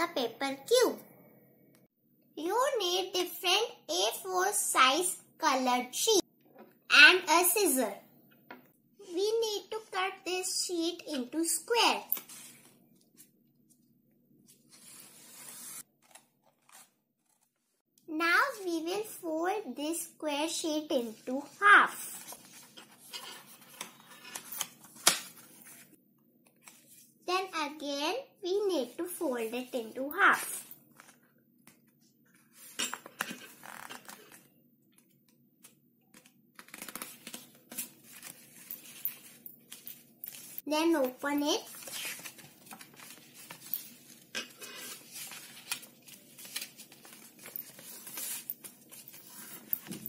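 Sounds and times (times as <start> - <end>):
paper rustling and scraping: 12.1 - 13.8, 14.4 - 17.8, 21.4 - 26.0, 32.4 - 34.4, 36.2 - 40.6, 41.6 - 50.0.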